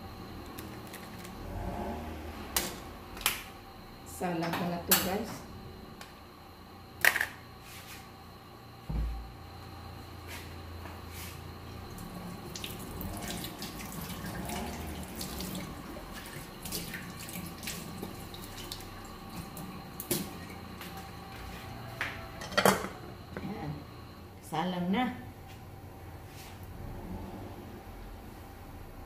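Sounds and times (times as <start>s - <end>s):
water running from a tap: 12.0s - 20.2s.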